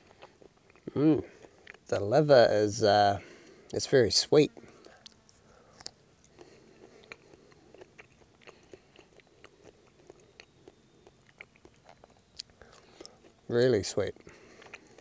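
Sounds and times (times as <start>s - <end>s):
person chewing with wet smacks: 0.0s - 1.9s, 4.6s - 13.5s, 14.1s - 15.0s.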